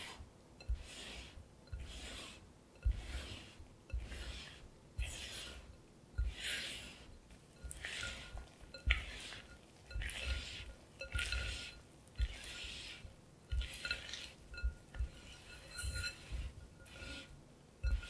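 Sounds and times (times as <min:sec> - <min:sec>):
spatula scraping batter: 0:00.0 - 0:18.0
spatula clinking on glass: 0:07.6 - 0:12.4, 0:13.5 - 0:18.0.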